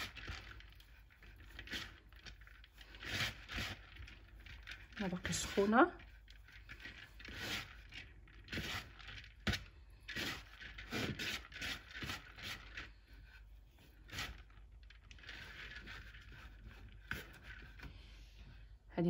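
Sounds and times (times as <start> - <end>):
hands rubbing grains in a bowl: 0.0 - 18.9.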